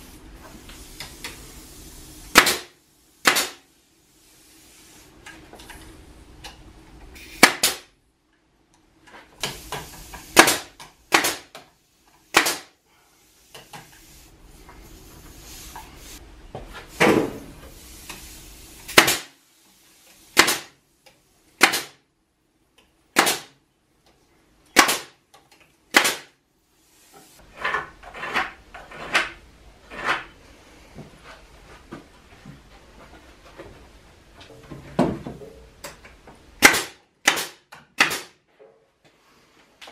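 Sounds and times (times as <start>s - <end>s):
nail gun shots into wood: 2.3s - 3.6s, 7.4s - 7.9s, 10.4s - 11.5s, 12.3s - 12.7s, 18.9s - 19.3s, 20.4s - 20.8s, 21.6s - 22.0s, 23.2s - 23.6s, 24.7s - 25.2s, 25.9s - 26.3s, 36.6s - 38.4s.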